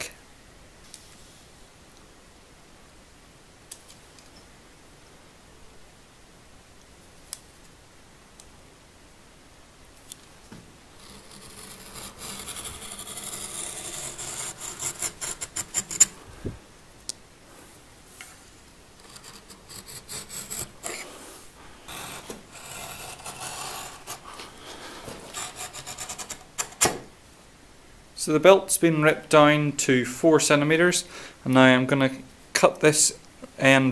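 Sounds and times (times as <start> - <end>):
knife scraping leather: 11.0 - 16.2, 19.0 - 21.1, 21.9 - 24.4.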